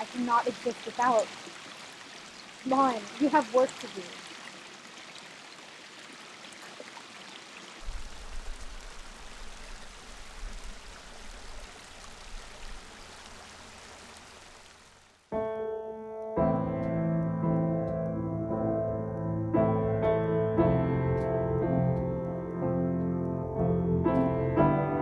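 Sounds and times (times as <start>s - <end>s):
creek water over rocks: 0.0s - 15.3s
low water rumble: 7.8s - 15.2s
piano music: 15.3s - 25.0s.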